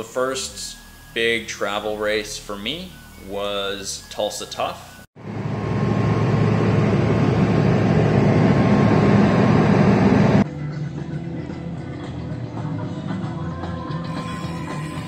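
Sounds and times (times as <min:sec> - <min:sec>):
jet engine cabin rumble: 0:05.2 - 0:10.4.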